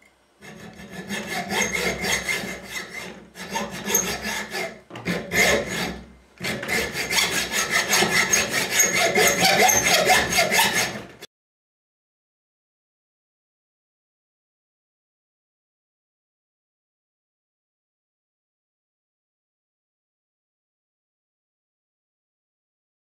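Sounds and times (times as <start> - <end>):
hacksaw sawing metal: 0.4 - 11.3.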